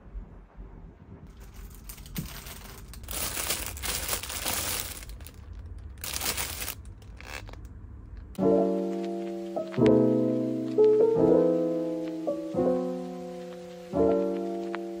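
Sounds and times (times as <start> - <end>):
plastic wrap crinkling: 1.3 - 7.7
piano music: 8.4 - 15.0.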